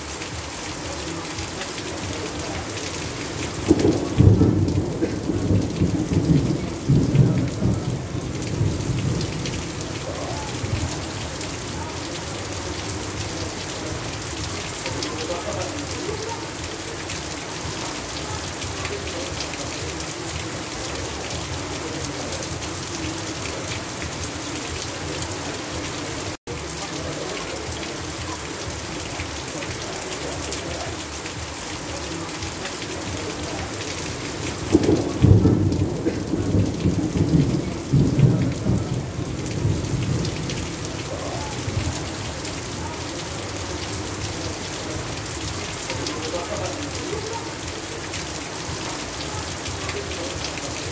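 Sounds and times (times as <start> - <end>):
heavy rain running off roof: 0.0 - 50.9
thunder rumbling: 2.0 - 26.3, 33.0 - 42.8.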